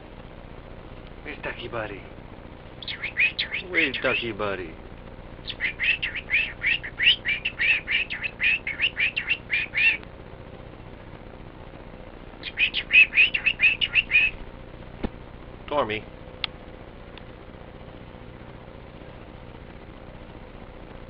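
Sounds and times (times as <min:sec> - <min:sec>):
cockatiel chirping: 0:02.8 - 0:04.3, 0:05.4 - 0:10.0, 0:12.4 - 0:14.4.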